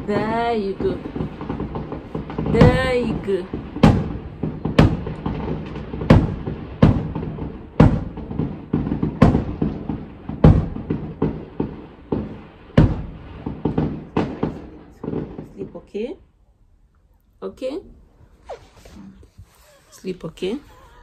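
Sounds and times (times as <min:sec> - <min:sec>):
fireworks banging: 0:00.0 - 0:16.4, 0:17.5 - 0:21.0
small firework pops: 0:00.2 - 0:15.6.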